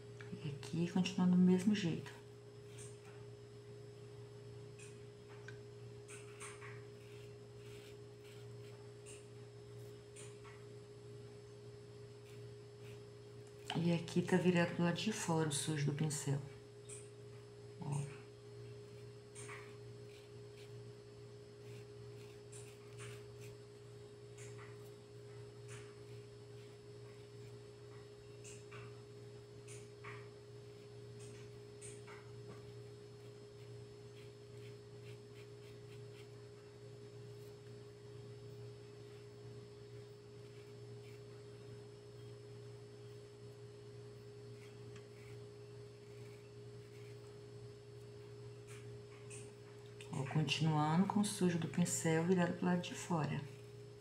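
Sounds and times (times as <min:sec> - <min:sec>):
faint low hum: 0:00.0 - 0:54.0
paintbrush scratching on cloth: 0:06.9 - 0:09.3, 0:12.2 - 0:13.1, 0:18.9 - 0:20.8, 0:21.6 - 0:23.6, 0:32.6 - 0:36.4, 0:40.4 - 0:41.4, 0:44.5 - 0:47.4.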